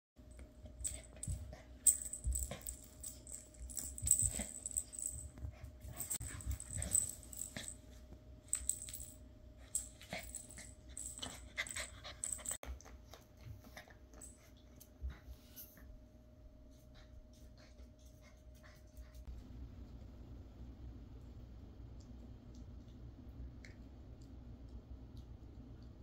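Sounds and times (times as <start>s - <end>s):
puppy playing with plush toys: 0.6s - 15.0s.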